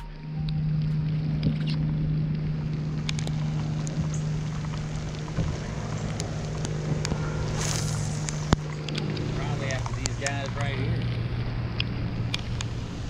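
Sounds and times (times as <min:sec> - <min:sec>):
boat motor humming: 0:00.0 - 0:13.0
wind and water noise: 0:00.0 - 0:13.0.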